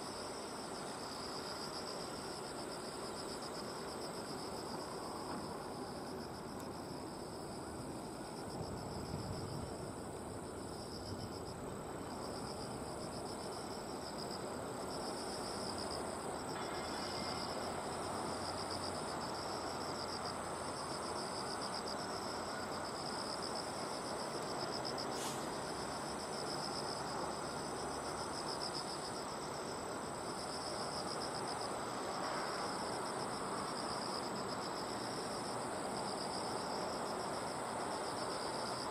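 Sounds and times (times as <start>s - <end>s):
pulsing insect song: 0.0s - 38.9s
insect high trill: 15.1s - 24.2s.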